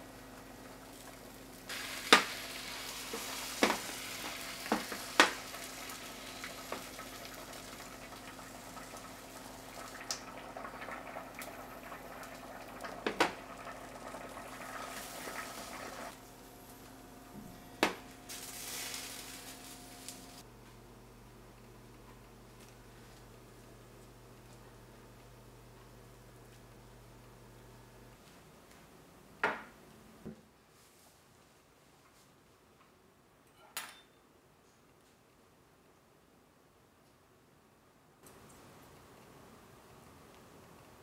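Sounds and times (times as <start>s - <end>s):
egg sizzling in a pan: 0.0s - 20.5s.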